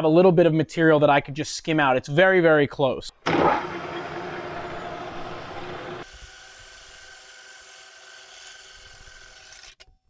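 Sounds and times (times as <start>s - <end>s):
metal lathe running: 3.3s - 9.6s.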